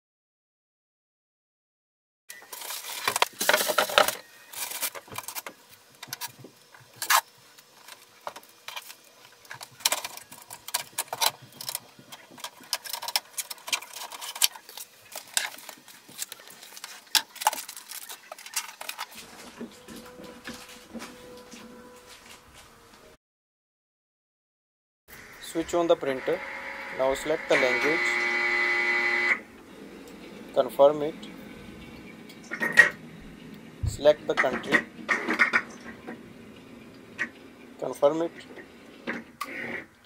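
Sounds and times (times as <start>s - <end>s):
polystyrene packing creaking: 2.4s - 5.5s, 9.7s - 23.0s
plastic bag crinkling: 9.7s - 22.7s.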